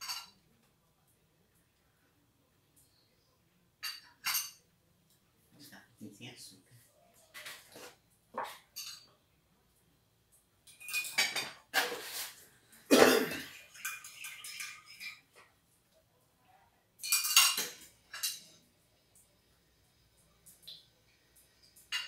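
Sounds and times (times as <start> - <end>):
spoon clinking in a cup: 8.7 - 9.1, 10.7 - 11.6, 17.0 - 18.5.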